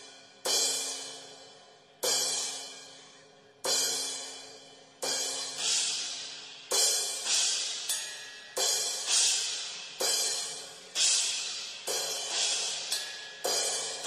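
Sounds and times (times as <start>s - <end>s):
cymbal crashes: 5.0s - 14.0s.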